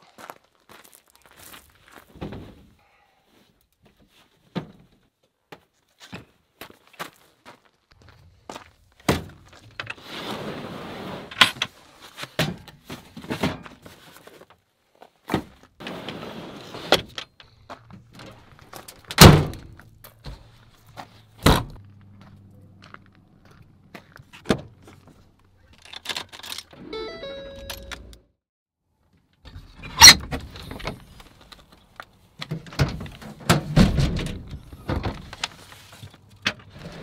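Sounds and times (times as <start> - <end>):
boxes sliding into truck bed: 9.9 - 11.6, 15.4 - 17.2
tailgate slamming shut: 19.1 - 19.7, 21.4 - 21.8, 32.8 - 35.2.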